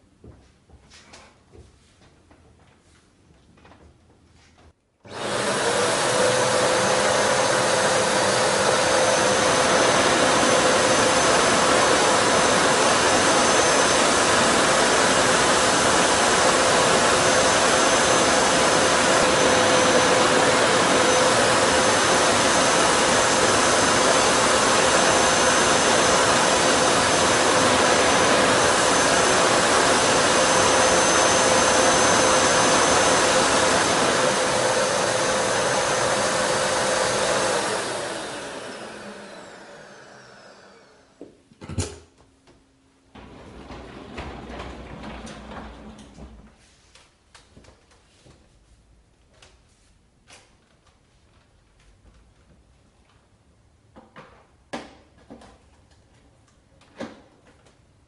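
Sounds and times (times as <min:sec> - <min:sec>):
vacuum cleaner motor whining: 0:05.1 - 0:41.3, 0:43.2 - 0:46.5.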